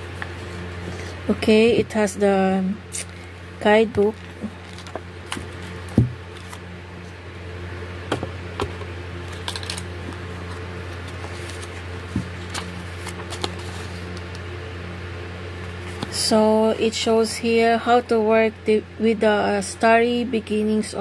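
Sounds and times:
pages flicking: 4.1s - 6.6s, 9.2s - 14.4s.

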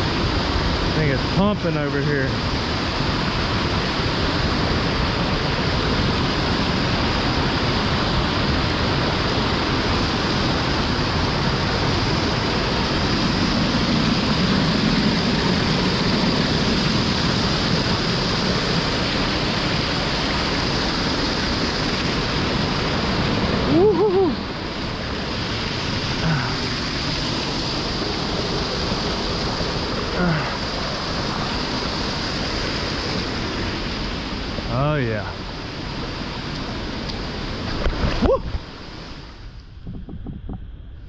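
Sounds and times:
rushing floodwater: 0.0s - 40.0s.

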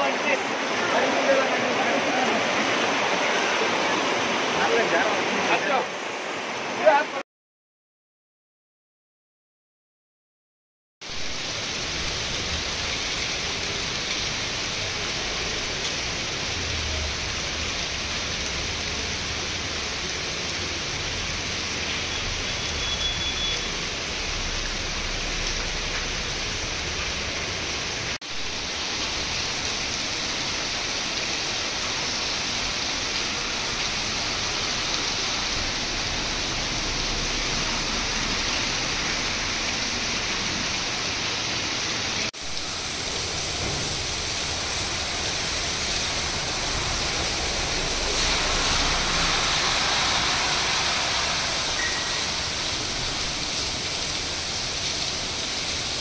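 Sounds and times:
heavy rain pouring: 0.0s - 7.2s, 11.0s - 56.0s.

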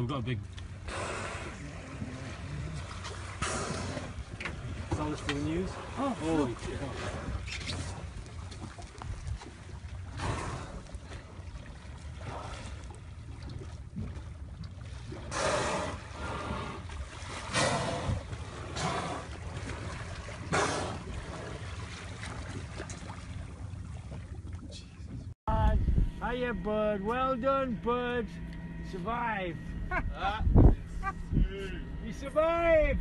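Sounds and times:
outboard motor humming: 0.0s - 33.0s
whale blows: 0.8s - 4.4s, 10.1s - 11.2s, 15.1s - 21.8s.

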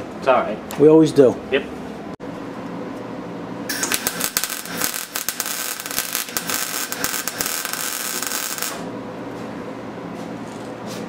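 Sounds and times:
welder arc crackling: 3.7s - 8.9s.

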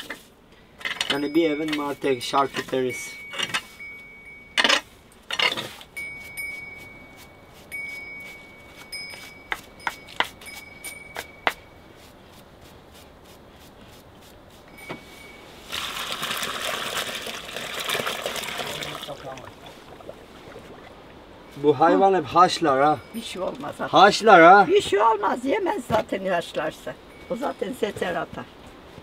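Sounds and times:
liquid stream splashing: 15.6s - 21.5s.

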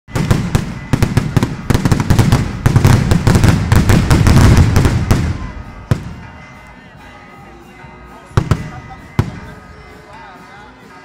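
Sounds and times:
fireworks bangs and cracks: 0.1s - 6.3s, 8.4s - 9.6s.

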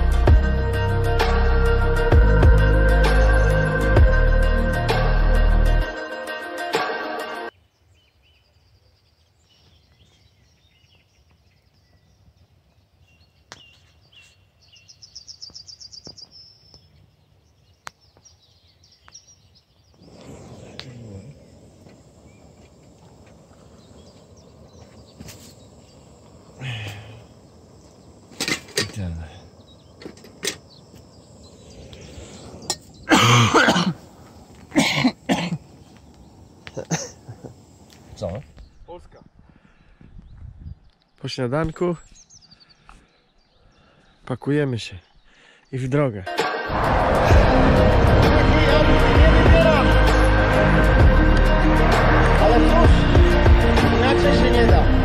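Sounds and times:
birds chirping and whistling: 7.6s - 33.4s, 38.3s - 46.2s
man's voice unworded bursts: 48.2s - 50.4s, 52.3s - 55.0s.

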